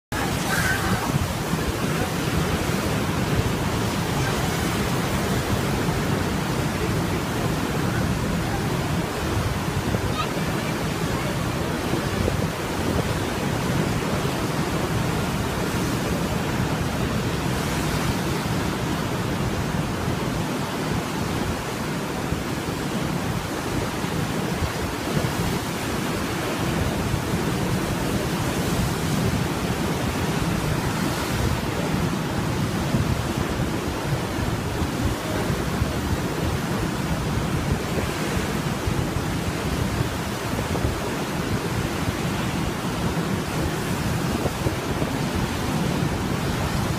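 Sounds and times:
ocean surf breaking: 0.0 - 46.9
wind buffeting microphone: 0.1 - 46.9.

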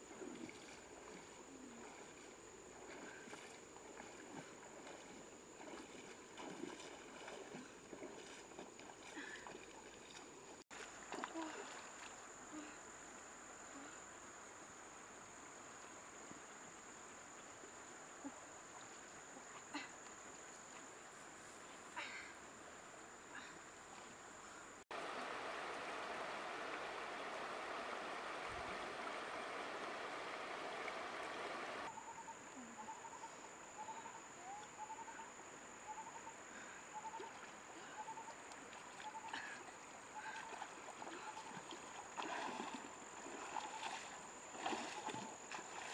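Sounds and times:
faint water splashes: 0.0 - 45.9
river rushing over stones: 24.9 - 31.9.

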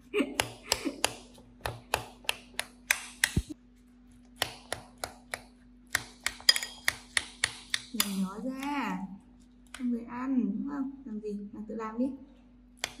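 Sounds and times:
metal spoon clinking in ceramic bowl: 6.4 - 6.9.

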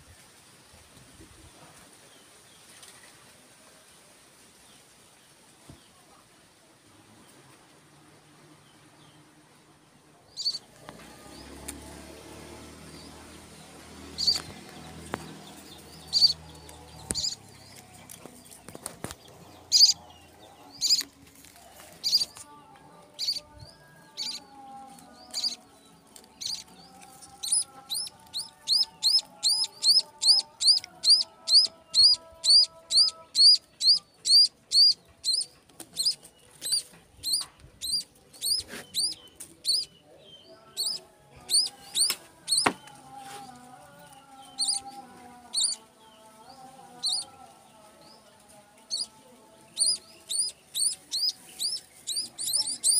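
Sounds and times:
munia cheeping: 19.7 - 20.0, 27.4 - 39.9, 45.5 - 45.8, 49.8 - 52.9.

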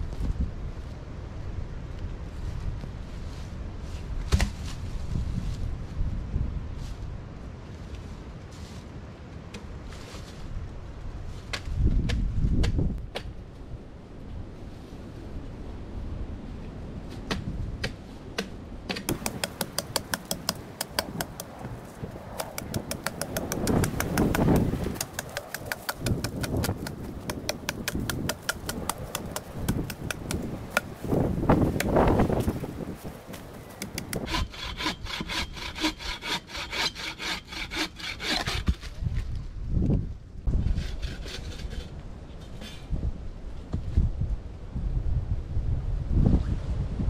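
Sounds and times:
hand tool striking log: 17.3 - 21.5, 22.4 - 32.6, 33.8 - 38.8.

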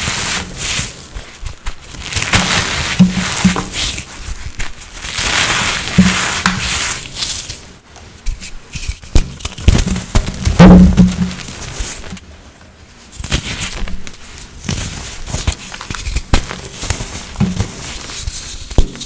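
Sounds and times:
dry powder blocks crunching: 0.0 - 7.6.

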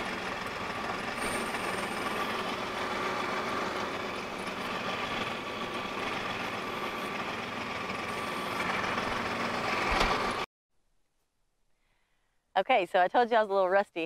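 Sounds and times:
tractor engine idling: 0.0 - 10.5.

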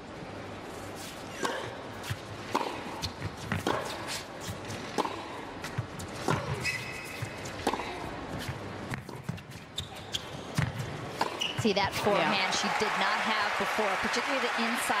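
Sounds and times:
racket striking tennis ball: 1.4 - 12.1
tennis ball bouncing: 1.4 - 12.1
shoe squeak: 6.5 - 7.5, 9.2 - 12.0.

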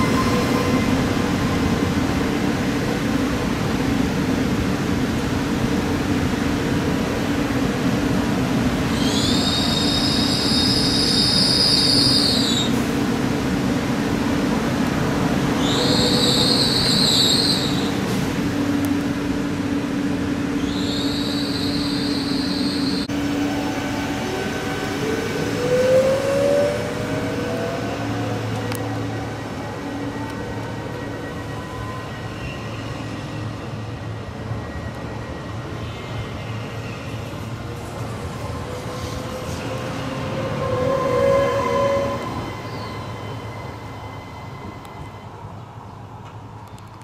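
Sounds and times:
train wheel squeal: 8.9 - 12.9, 15.6 - 18.0, 20.6 - 23.1, 30.1 - 33.9, 34.5 - 37.5, 38.5 - 45.6.

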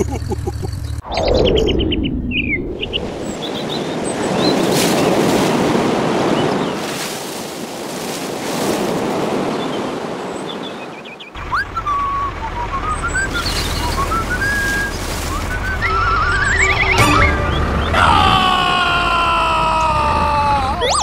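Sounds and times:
wind blowing in gusts: 1.0 - 11.2
faint bird chirps: 10.4 - 18.0.

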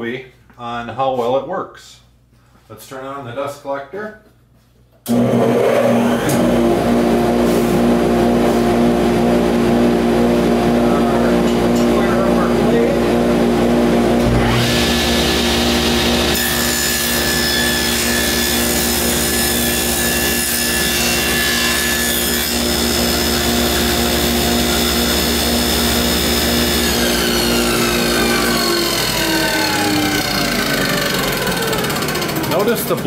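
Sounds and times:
dust collector humming: 5.1 - 33.0
table saw cutting plywood: 5.1 - 33.0.

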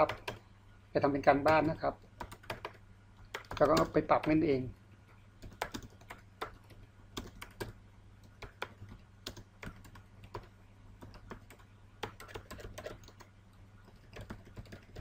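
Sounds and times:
computer keyboard typing: 0.0 - 0.4, 1.3 - 4.4, 5.4 - 15.0
faint low hum: 0.0 - 15.0.

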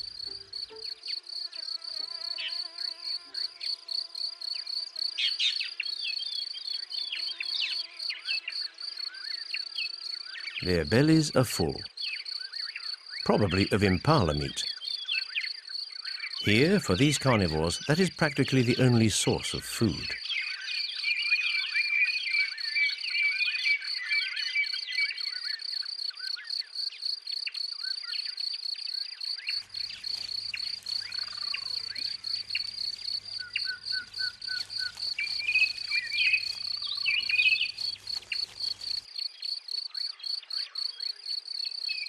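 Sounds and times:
insect trilling: 0.0 - 11.0, 25.4 - 41.9
birds chirping: 8.4 - 25.6, 29.4 - 41.1.

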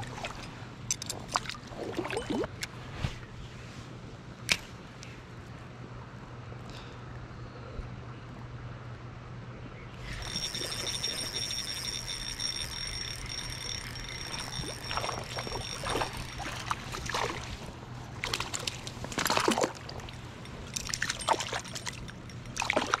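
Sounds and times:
high-pitched whine: 10.0 - 17.0
water splashing: 14.2 - 23.0.

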